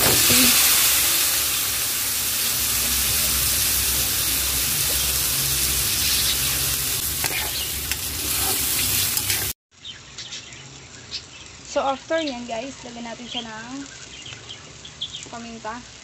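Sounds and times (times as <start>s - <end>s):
meat sizzling in hot oil: 0.0s - 9.6s
spatula scraping wok: 2.4s - 9.6s.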